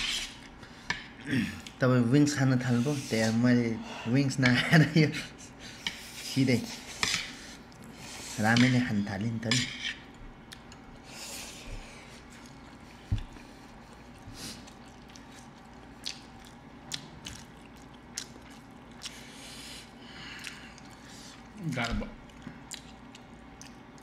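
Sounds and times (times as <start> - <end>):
quiet chewing: 9.9 - 24.0.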